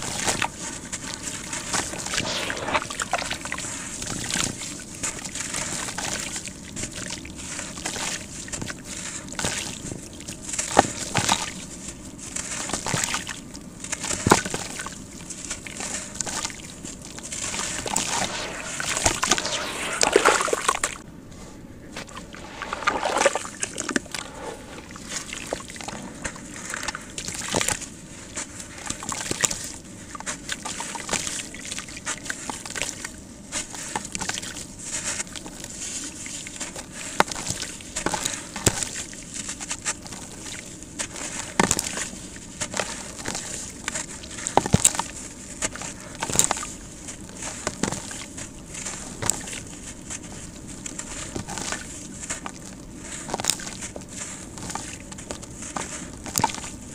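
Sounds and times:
sand-cement crumbling into water: 0:22.0 - 0:24.1.

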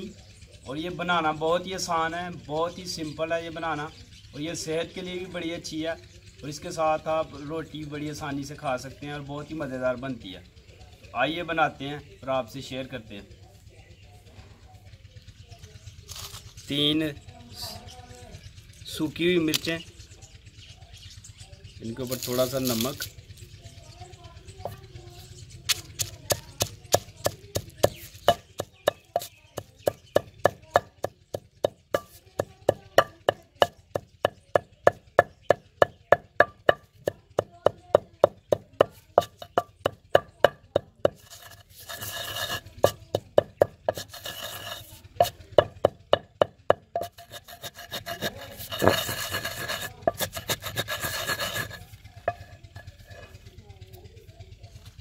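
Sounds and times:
pestle grinding against stone: 0:25.7 - 0:53.4
pestle pounding in stone mortar: 0:25.7 - 0:53.4.

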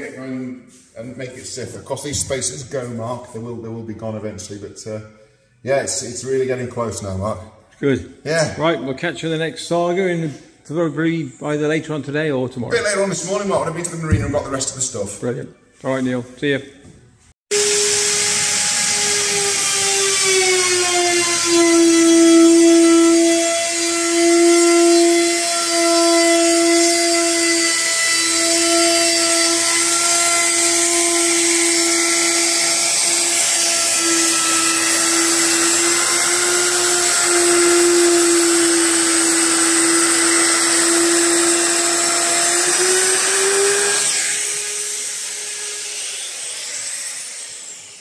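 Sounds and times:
router winding down: 0:17.5 - 0:48.0
trim router high whine: 0:17.5 - 0:48.0.

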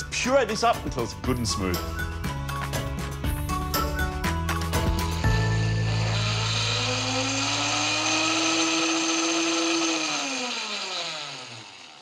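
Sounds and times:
blender motor running: 0:04.3 - 0:12.0.

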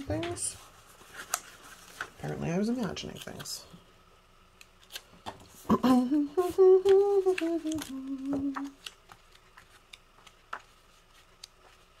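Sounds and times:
pages rustling: 0:00.2 - 0:03.6, 0:06.8 - 0:12.0
woman humming a tune: 0:05.7 - 0:08.8.

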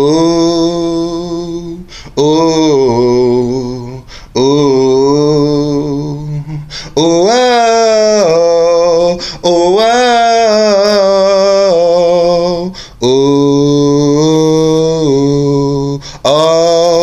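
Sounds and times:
man singing solo: 0:00.0 - 0:17.0.

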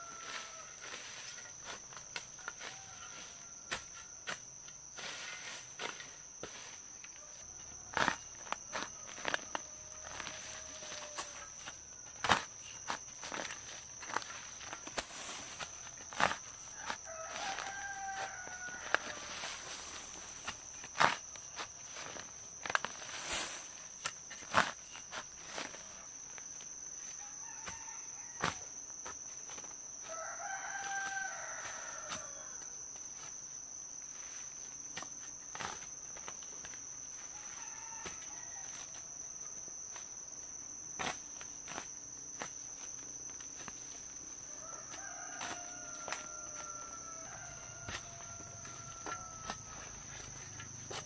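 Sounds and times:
roosters crowing: 0:00.0 - 0:01.3, 0:08.9 - 0:11.7, 0:13.3 - 0:20.5, 0:30.0 - 0:32.6, 0:37.1 - 0:38.9, 0:44.4 - 0:51.0.

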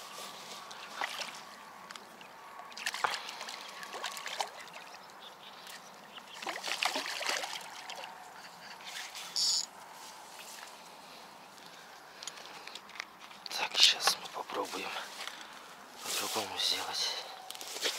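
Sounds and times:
fish thrashing and splashing: 0:00.6 - 0:01.6, 0:02.2 - 0:05.0, 0:05.7 - 0:08.2.

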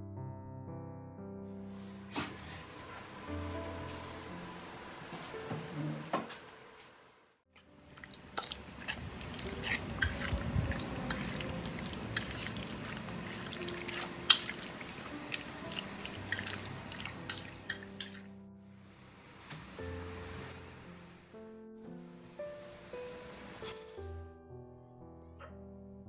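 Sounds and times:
water dripping: 0:07.6 - 0:18.3.

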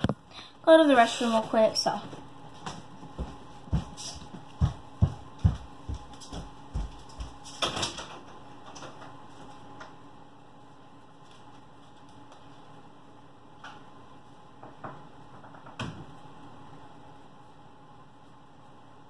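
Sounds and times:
footsteps on floor: 0:01.3 - 0:07.6.

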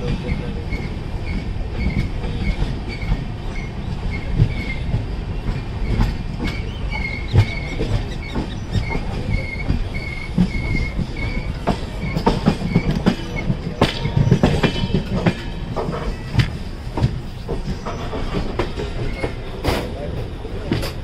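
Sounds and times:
train wheels clattering over rail joints: 0:00.0 - 0:21.0
high wheel squeal: 0:05.8 - 0:16.4.

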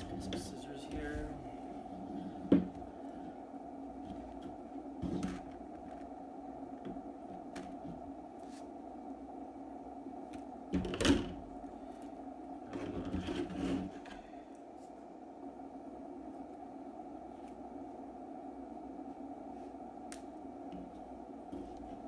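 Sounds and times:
steady low hum: 0:00.0 - 0:22.0
paper rustling and scraping: 0:08.4 - 0:08.7.

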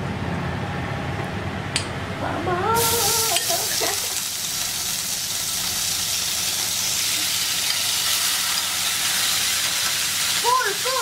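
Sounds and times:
chicken sizzling in hot oil: 0:02.8 - 0:11.0.

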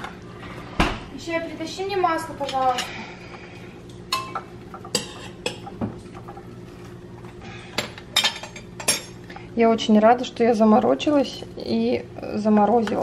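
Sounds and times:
dishes and cutlery clinking: 0:02.4 - 0:03.0, 0:04.1 - 0:06.5, 0:07.8 - 0:09.2.

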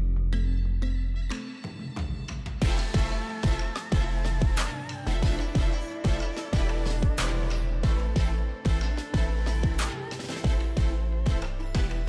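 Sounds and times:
deep kick drum beat: 0:02.6 - 0:12.0.

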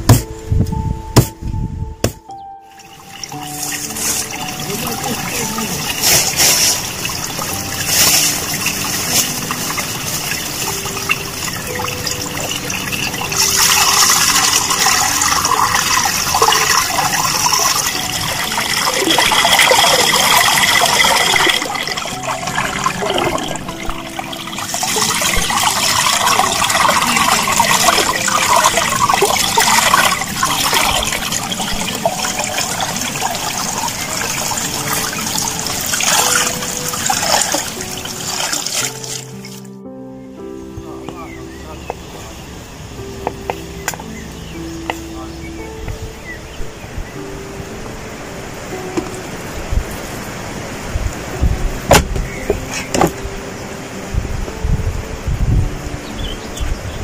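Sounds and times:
water pouring into rocky pool: 0:02.8 - 0:39.7.

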